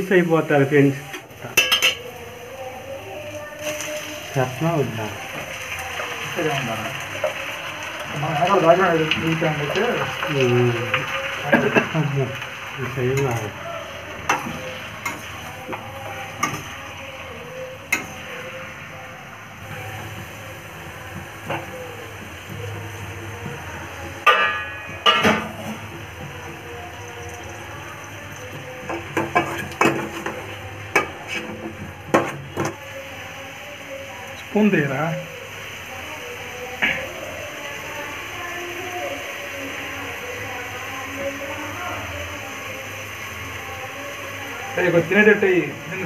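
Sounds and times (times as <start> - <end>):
chicken sizzling in a pan: 0.0 - 46.0
metal spoon clanking on pot: 1.4 - 2.1, 24.2 - 25.6
spatula clinking against pan: 1.6 - 2.1, 24.2 - 25.4.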